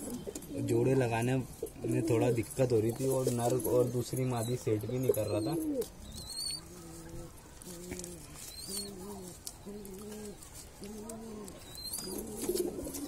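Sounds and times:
pigeons cooing: 0.0 - 13.0.

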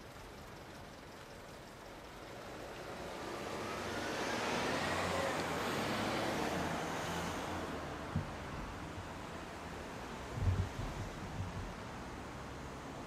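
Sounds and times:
car driving past: 2.8 - 8.1.

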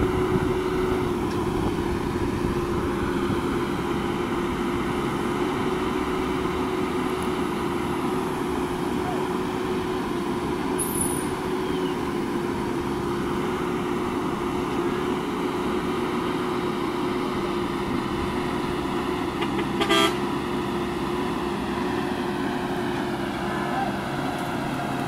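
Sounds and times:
diesel engine running: 0.0 - 25.0
short horn toot: 19.4 - 20.2.

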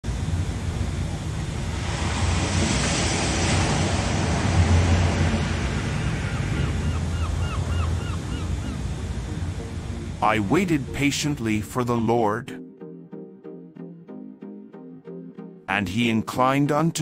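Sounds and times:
wind: 0.0 - 10.8
ocean waves: 0.1 - 12.4
bird calling: 5.9 - 10.5.

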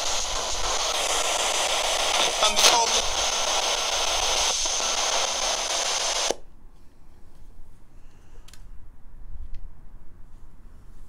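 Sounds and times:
static hiss: 0.0 - 6.4.

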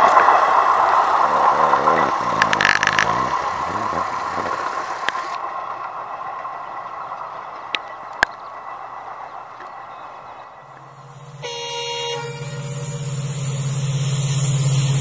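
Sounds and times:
rattling: 0.0 - 15.0
train wheels clattering on rails: 0.0 - 15.0
steady high tone: 10.4 - 15.0.

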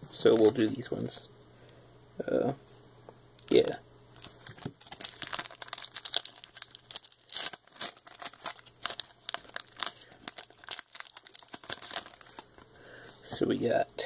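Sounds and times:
foil wrapper crinkling: 0.2 - 0.8, 3.4 - 12.8.

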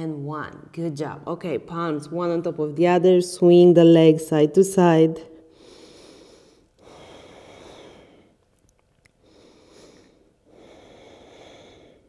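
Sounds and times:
woman breathing: 5.3 - 8.4, 9.2 - 12.0.

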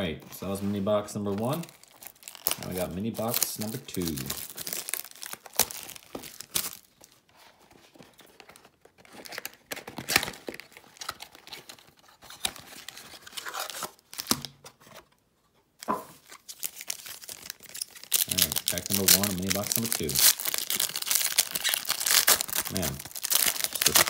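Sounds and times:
foil card packs rustling: 0.3 - 15.0, 16.1 - 24.0
cellophane wrap crinkling and tearing: 0.4 - 7.2, 8.4 - 14.6, 16.1 - 24.0.

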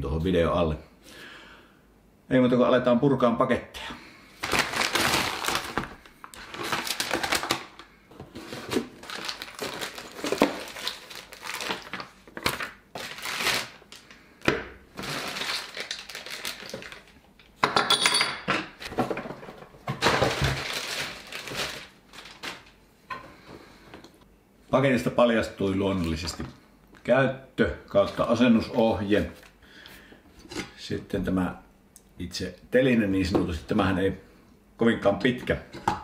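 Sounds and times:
cardboard packaging rustling: 4.4 - 14.2, 14.9 - 17.4, 18.8 - 22.8
clinks and knocks of parts: 17.6 - 19.2.

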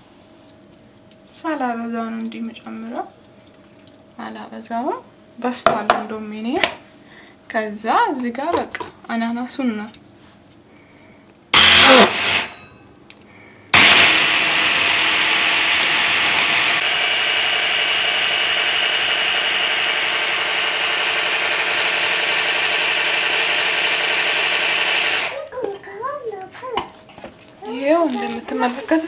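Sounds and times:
hand blender running: 11.6 - 12.6, 13.8 - 25.5.

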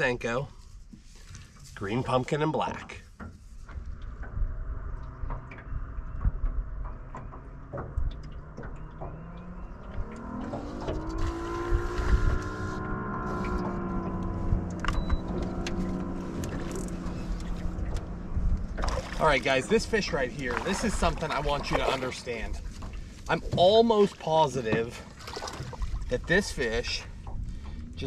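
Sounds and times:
low rumble: 1.3 - 28.0
electric trolling motor whining: 3.8 - 18.8.

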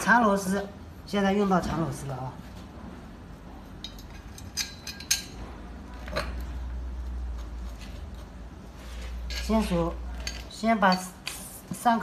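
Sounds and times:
steel screws clinking: 3.8 - 5.4.

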